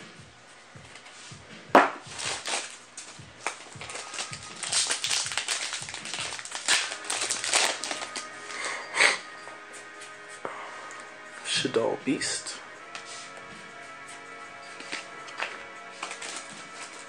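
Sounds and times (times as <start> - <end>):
trading cards rustling and clicking: 2.1 - 9.2, 14.6 - 17.0.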